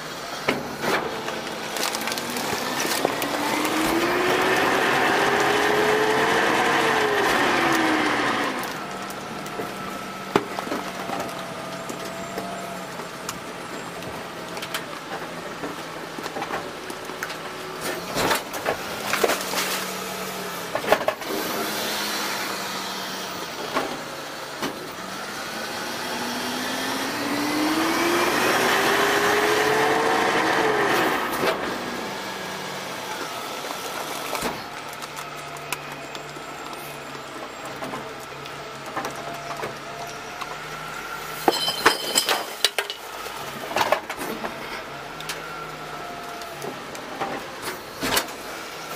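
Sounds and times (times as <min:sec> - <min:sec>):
garbage truck engine whining: 0:00.0 - 0:48.9
falling trash clunking: 0:41.3 - 0:45.4.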